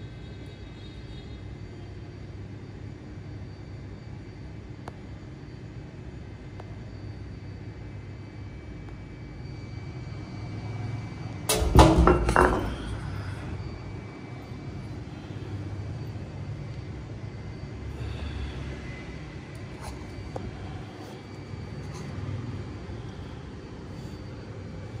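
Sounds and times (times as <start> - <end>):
iron ball knocking on metal railing: 11.5 - 13.0.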